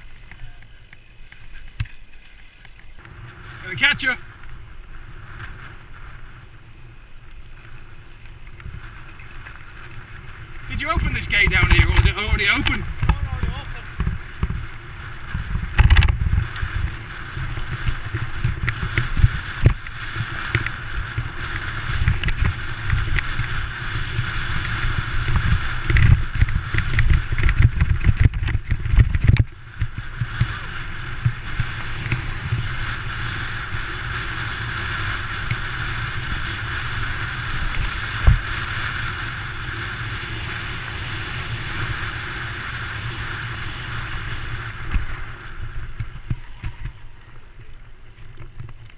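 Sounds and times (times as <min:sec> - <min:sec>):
bike knocks and rattles: 0:00.0 - 0:03.1, 0:08.2 - 0:38.9
bike tyre rumble on gravel: 0:00.0 - 0:48.9.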